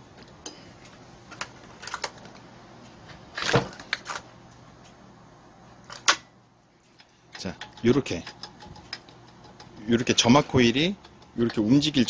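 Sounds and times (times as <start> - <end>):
tool clicking on engine: 7.0 - 12.0.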